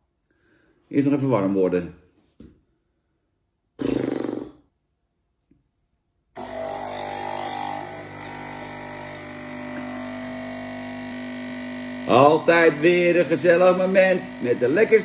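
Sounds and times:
coffee machine pump humming: 6.4s - 15.0s.

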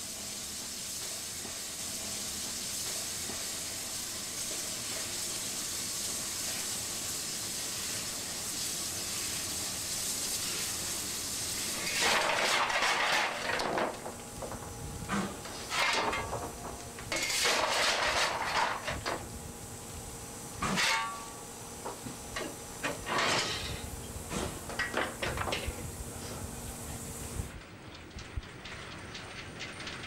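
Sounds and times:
faint steam hiss: 0.0s - 30.0s
steel shovel scraping and clanking: 11.8s - 14.1s, 15.1s - 19.2s, 20.6s - 21.4s, 22.4s - 25.7s.

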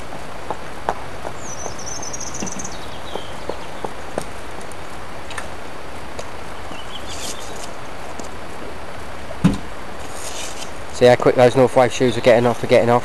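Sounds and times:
outdoor background hiss: 0.0s - 13.0s
dull thump: 9.4s - 9.7s.

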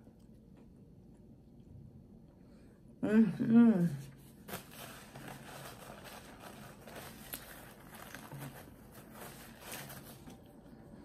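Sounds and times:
paper napkin crinkling: 4.2s - 10.8s.

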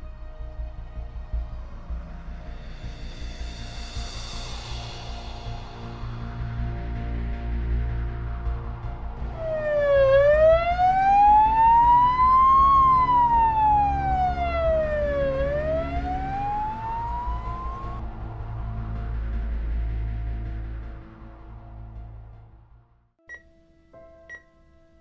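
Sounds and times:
ambulance siren wailing: 9.4s - 18.0s.

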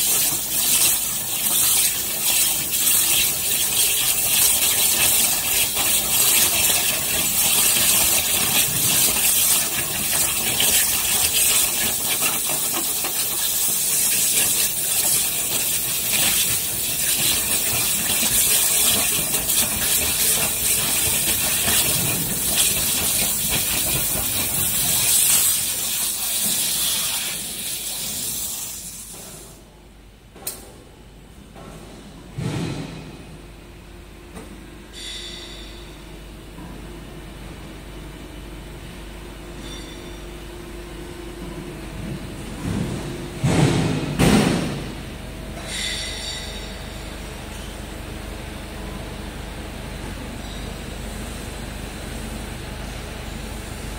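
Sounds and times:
waterjet cutter hissing: 0.0s - 29.1s.

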